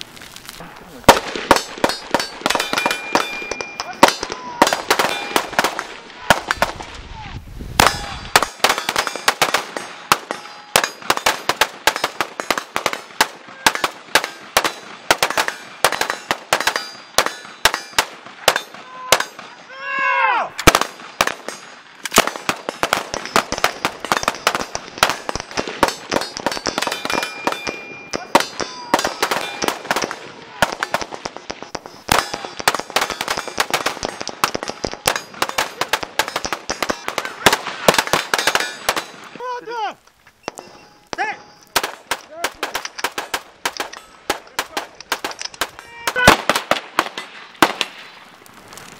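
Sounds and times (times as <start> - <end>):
rifle fire: 1.1 - 7.0, 7.7 - 19.6, 20.6 - 39.4, 40.5 - 48.2
person shouting: 3.8 - 4.8, 18.8 - 20.6, 45.8 - 46.4.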